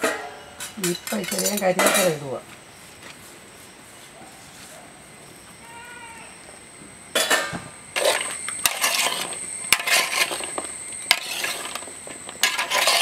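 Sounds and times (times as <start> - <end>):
clinks against metal pot: 0.0 - 2.2.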